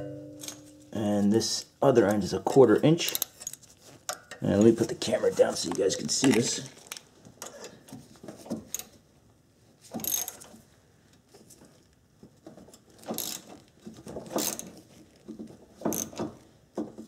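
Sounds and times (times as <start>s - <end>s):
wrench clicking and rattling: 10.0s - 10.5s, 13.1s - 13.6s.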